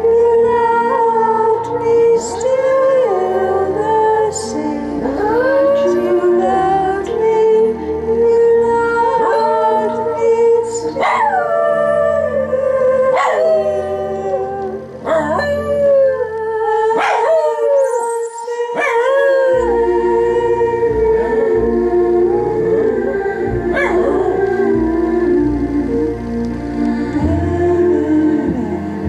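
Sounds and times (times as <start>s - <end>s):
song playing: 0.0s - 29.0s
dog howling: 10.9s - 21.5s, 22.2s - 24.7s.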